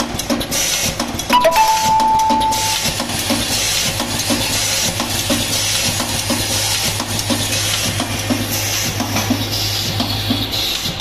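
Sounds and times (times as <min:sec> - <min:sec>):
machine hiss and clatter: 0:00.0 - 0:01.3, 0:03.0 - 0:11.0
steady tone: 0:01.4 - 0:03.1.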